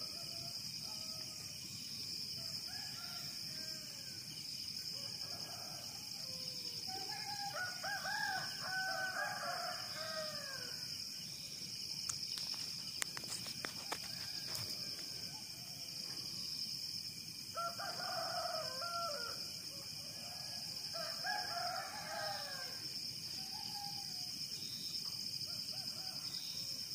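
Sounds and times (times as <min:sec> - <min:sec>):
rooster crowing: 0:05.0 - 0:10.8, 0:13.8 - 0:15.7, 0:17.6 - 0:22.8.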